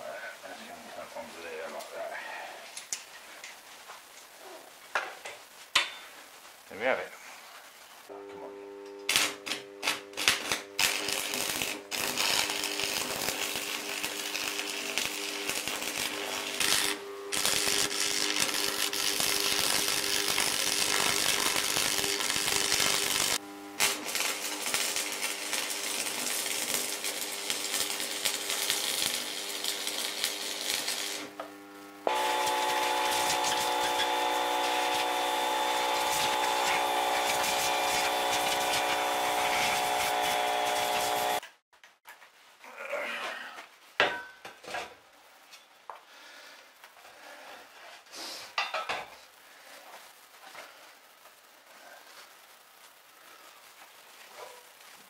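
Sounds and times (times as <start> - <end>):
angle grinder on steel: 32.1 - 41.4.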